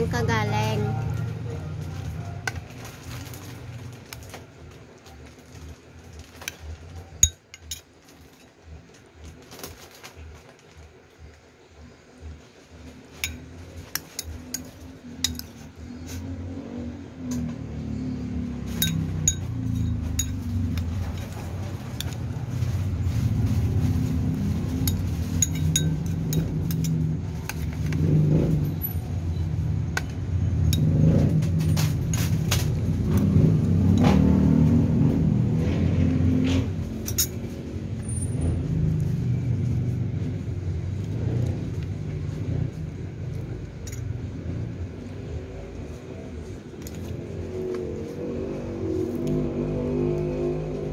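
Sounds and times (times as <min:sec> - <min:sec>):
motor vehicle engine rumble: 0:00.0 - 0:50.9
metal spoon clinking ceramic bowl: 0:07.2 - 0:07.9, 0:13.2 - 0:15.6, 0:18.7 - 0:21.3, 0:24.8 - 0:27.0.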